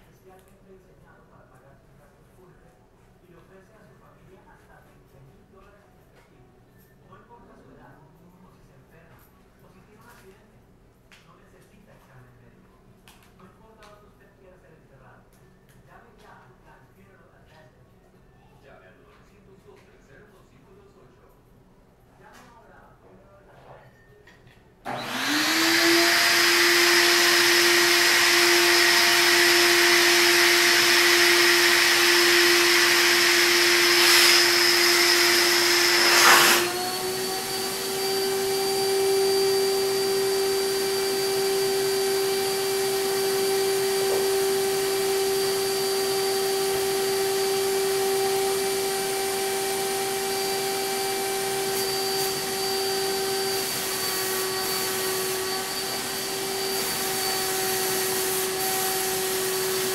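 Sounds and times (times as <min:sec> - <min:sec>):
sprayer turbine whine: 0:48.5 - 0:59.9.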